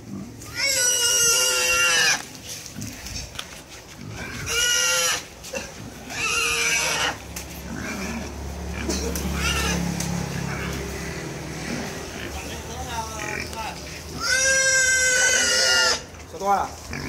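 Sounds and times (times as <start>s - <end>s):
wild boar squealing: 0.4s - 2.3s, 4.1s - 5.3s, 6.1s - 10.7s, 14.1s - 16.1s.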